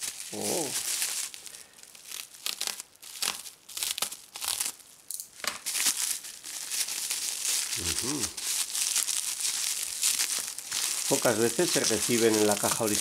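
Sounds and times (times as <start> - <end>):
bubble wrap crinkling: 0.0 - 13.0.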